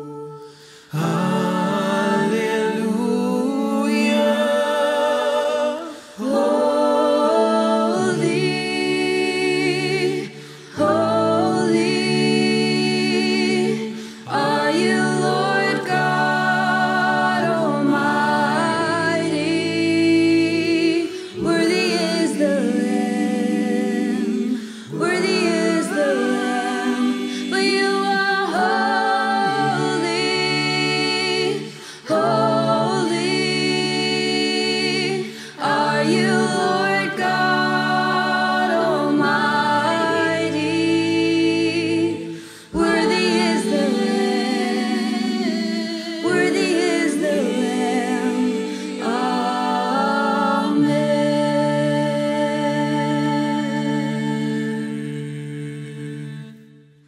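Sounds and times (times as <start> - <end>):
voices singing worship song: 0.0 - 57.0.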